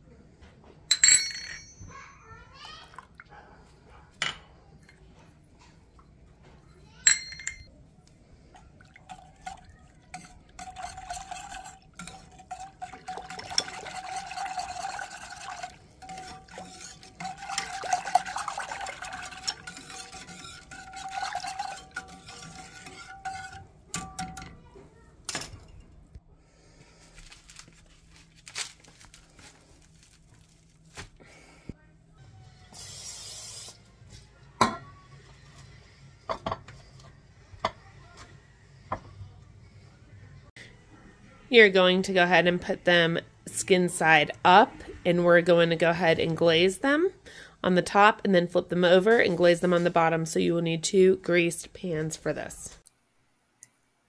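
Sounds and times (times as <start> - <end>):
sharp metallic clink: 0.9 - 2.0, 7.1 - 7.7
whisk scraping metal saucepan: 9.0 - 24.5.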